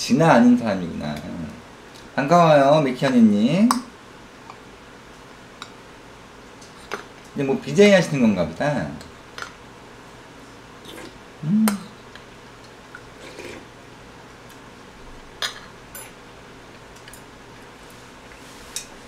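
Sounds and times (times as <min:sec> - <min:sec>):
mouth sounds of eating: 0:10.8 - 0:12.2
short voice hum: 0:11.4 - 0:12.0.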